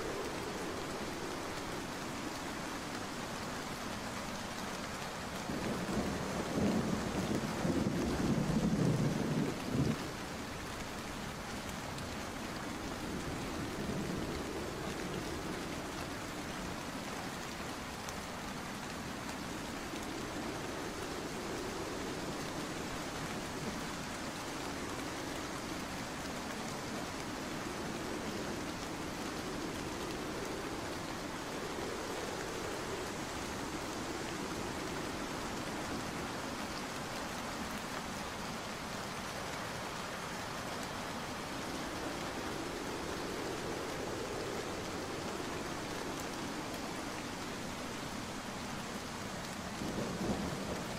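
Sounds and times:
steady rain hiss: 0.0s - 50.9s.

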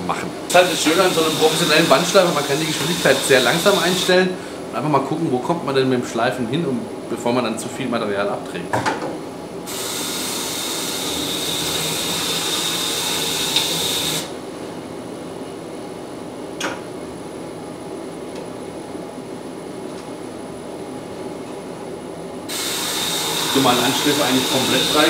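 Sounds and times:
grinder running: 0.5s - 4.2s, 9.7s - 14.3s, 22.5s - 25.0s
belt grinder grinding metal: 22.5s - 25.0s.

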